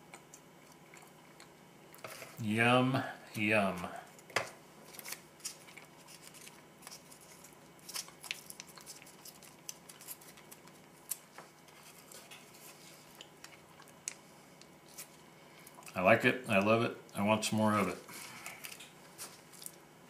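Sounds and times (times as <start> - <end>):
bread breaking crackles: 4.1 - 15.9, 18.4 - 19.8.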